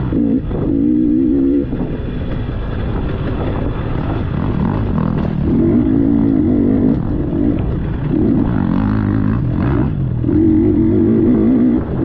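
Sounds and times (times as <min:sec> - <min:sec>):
dirt bike engine revving: 0:03.2 - 0:12.0.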